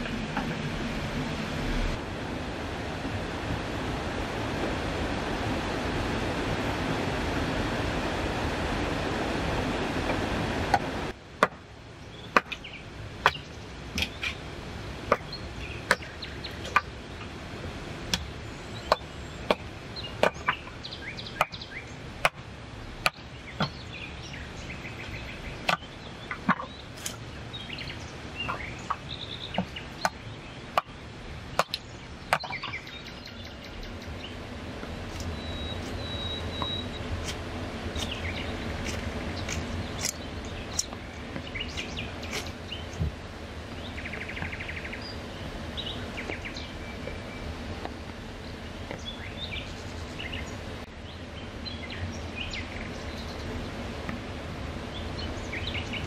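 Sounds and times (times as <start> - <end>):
hatchet chopping wood: 11.4 - 11.6, 12.4 - 12.6, 31.6 - 32.6
birds chirping: 12.0 - 17.4, 18.0 - 22.1, 22.7 - 53.9, 54.8 - 56.0.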